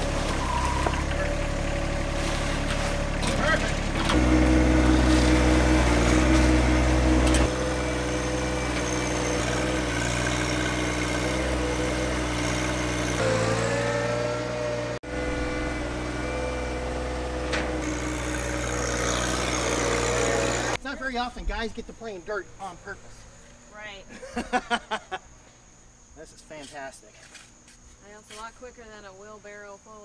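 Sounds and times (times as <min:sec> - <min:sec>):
tractor diesel engine running: 0:00.0 - 0:20.8.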